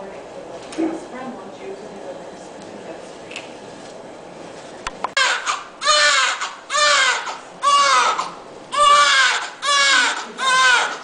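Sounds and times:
newborn baby crying: 0:05.2 - 0:11.0.

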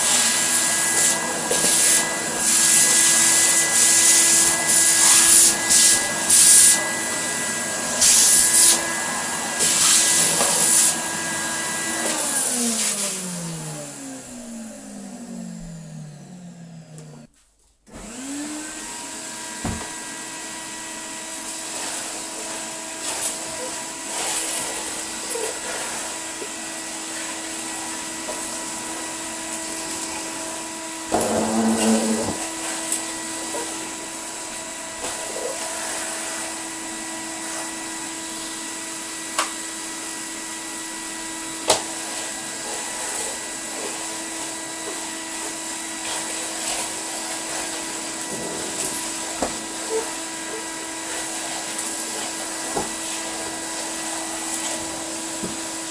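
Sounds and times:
vacuum cleaner running: 0:00.0 - 0:17.3, 0:17.9 - 0:55.9
floor tool pushed over floor: 0:31.1 - 0:33.8, 0:41.7 - 0:55.8.

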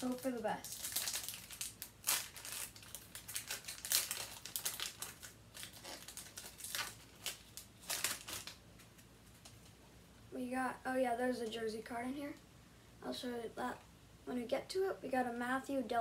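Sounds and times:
wrapper crinkling: 0:00.0 - 0:09.8.

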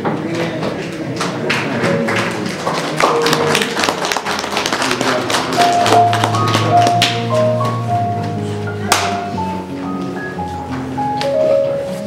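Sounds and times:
held notes: 0:05.3 - 0:12.0.

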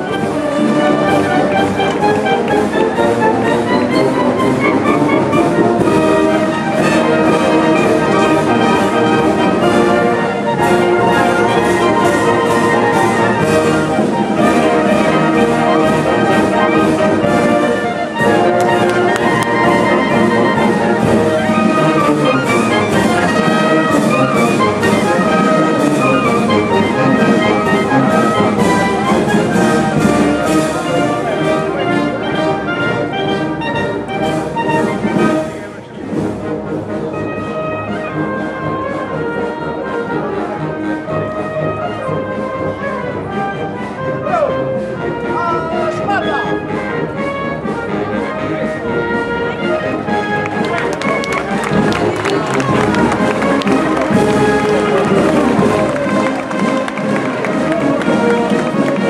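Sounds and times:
trumpets and trombones: 0:00.0 - 0:59.0
steady drum beat: 0:50.5 - 0:59.0.

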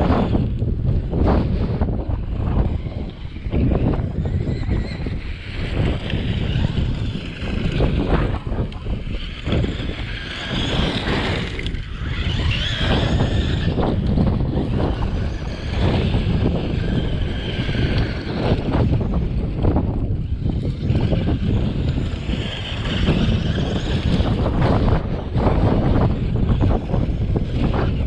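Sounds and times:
rc truck electric motor whine: 0:00.0 - 0:28.0
wind buffeting microphone: 0:00.0 - 0:28.0
tyres on gravel: 0:01.9 - 0:27.8.

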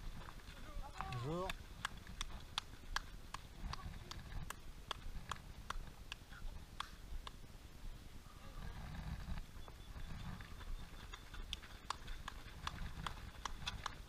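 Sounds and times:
running footsteps on asphalt: 0:00.0 - 0:06.2, 0:09.4 - 0:14.0.

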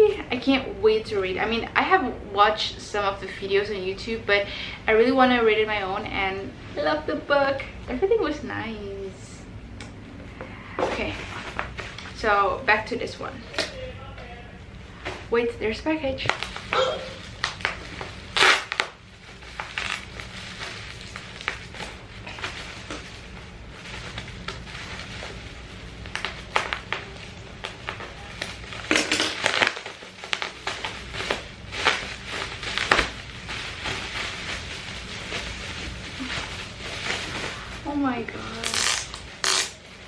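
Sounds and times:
bubble wrap crinkling and tearing: 0:16.2 - 0:40.0.

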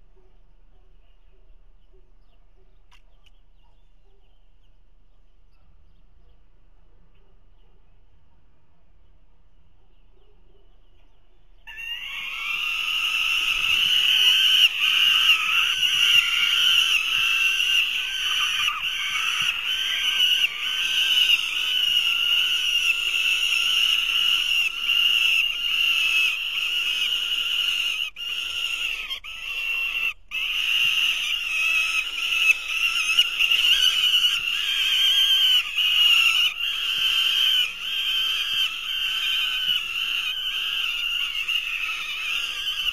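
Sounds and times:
bird nestlings begging calls: 0:11.7 - 0:42.9.

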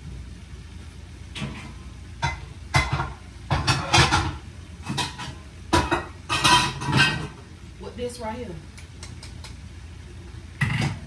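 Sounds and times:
kitchenware clanking: 0:01.4 - 0:07.4, 0:10.6 - 0:11.0.

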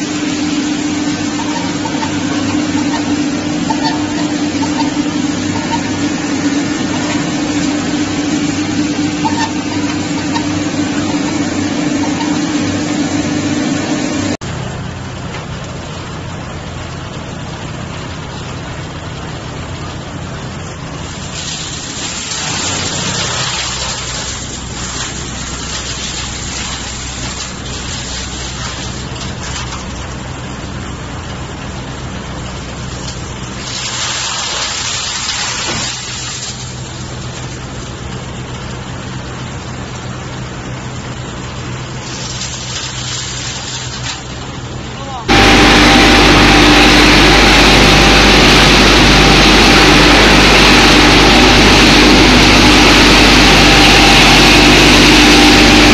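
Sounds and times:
deep machine hum: 0:00.0 - 0:21.2, 0:44.2 - 0:55.9
wood chipper running: 0:00.0 - 0:55.9.

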